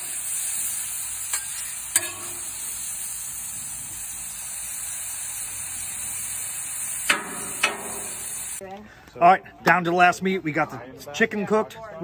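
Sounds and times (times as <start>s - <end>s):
steak sizzling on a griddle: 0.0s - 8.6s
metal spatula clink: 1.3s - 2.5s.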